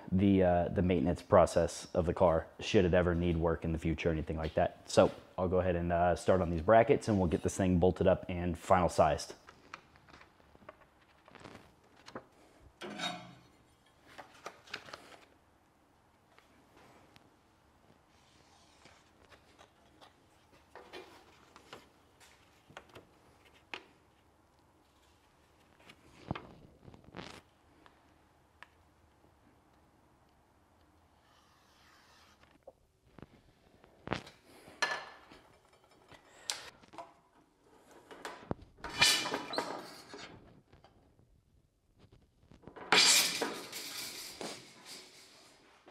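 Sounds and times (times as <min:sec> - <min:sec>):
metal shear cutting sheet metal: 0:12.8 - 0:13.4, 0:38.9 - 0:39.6, 0:42.9 - 0:44.4.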